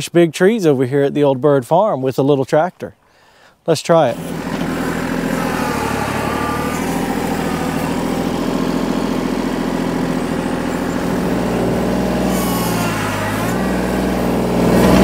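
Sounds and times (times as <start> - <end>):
tractor diesel engine running: 4.0 - 15.0.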